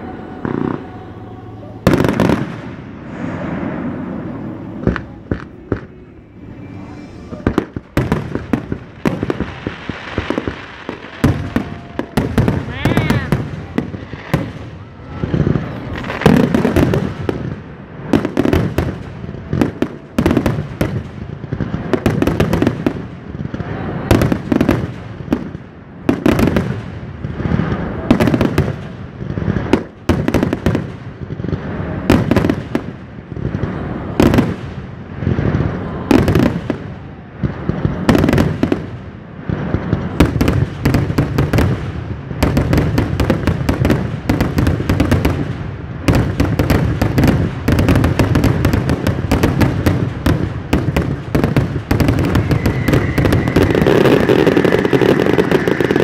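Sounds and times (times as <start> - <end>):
fireworks bangs: 0.0 - 56.0
fireworks crackling: 0.0 - 56.0.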